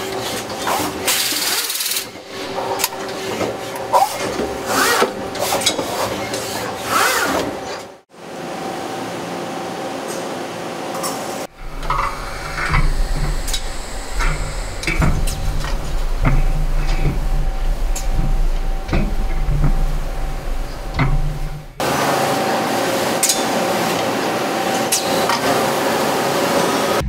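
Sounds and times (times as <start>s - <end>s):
machine clicks and clanks: 0.0s - 8.0s, 11.0s - 21.9s, 23.2s - 24.1s, 24.7s - 25.6s
steady machine hum: 2.1s - 27.0s
short rising whirs: 11.5s - 22.4s
low hum: 11.5s - 22.7s.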